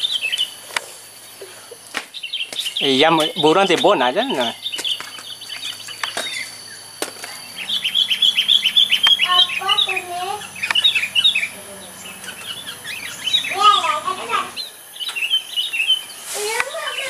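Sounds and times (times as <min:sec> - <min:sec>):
birds chirping: 0:00.0 - 0:17.0
lower warbled bird notes: 0:02.2 - 0:16.2
faint clicks: 0:10.6 - 0:10.8.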